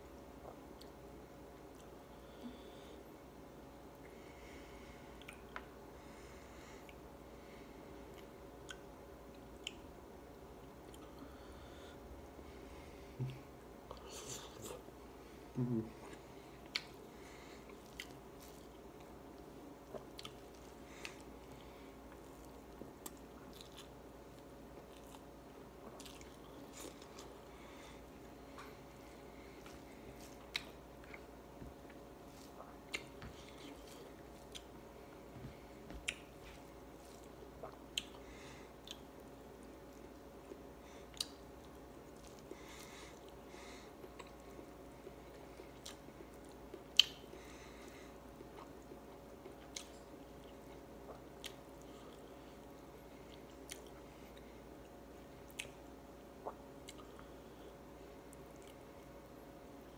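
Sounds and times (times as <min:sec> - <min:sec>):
faint steady hum: 0:00.0 - 0:59.9
person chewing with mouth smacks: 0:05.2 - 0:05.8, 0:15.6 - 0:17.0, 0:19.8 - 0:21.3, 0:22.1 - 0:27.5, 0:29.6 - 0:38.2, 0:38.8 - 0:43.4, 0:45.3 - 0:47.4, 0:48.4 - 0:57.3.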